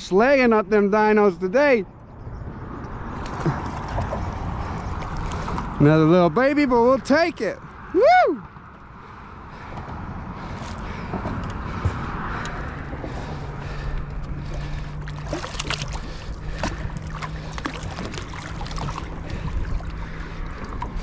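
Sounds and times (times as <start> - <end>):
wind buffeting microphone: 2.2 - 21.0
water lapping against boat: 2.8 - 7.8, 8.5 - 21.0
low steady hum: 10.4 - 21.0.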